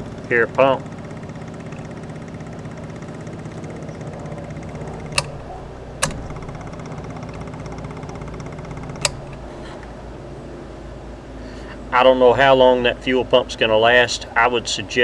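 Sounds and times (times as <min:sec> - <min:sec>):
boat motor idling: 0:00.0 - 0:15.0
sharp clicks: 0:03.1 - 0:09.9.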